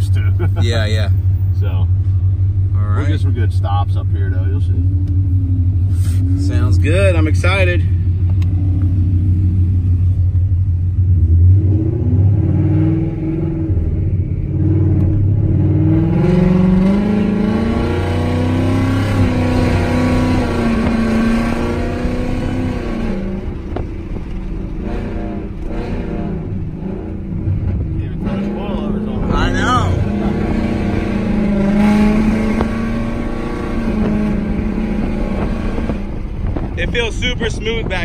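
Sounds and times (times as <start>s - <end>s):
car engine accelerating: 0.0s - 38.0s.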